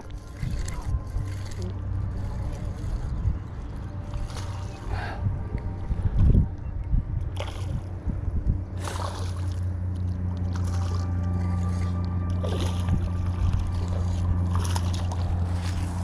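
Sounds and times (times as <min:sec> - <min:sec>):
fish splashing: 0:08.8 - 0:16.0.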